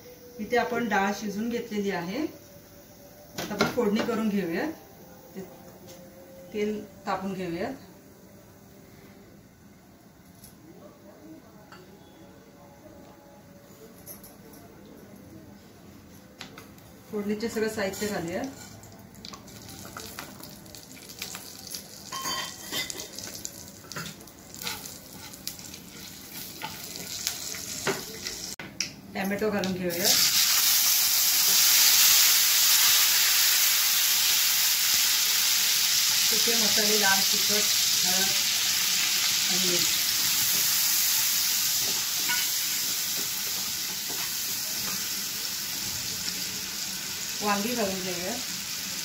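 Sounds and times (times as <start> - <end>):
spices sizzling in hot oil: 0.0 - 5.5, 17.1 - 28.6, 29.3 - 49.0
oil popping and crackling: 19.1 - 22.2.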